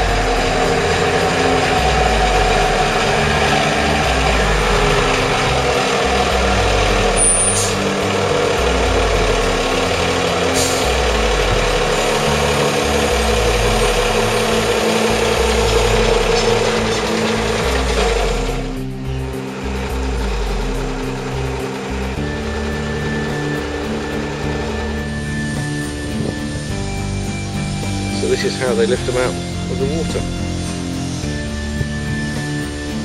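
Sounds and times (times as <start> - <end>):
steady tone: 0.0 - 19.2
forklift engine under load: 0.0 - 33.0.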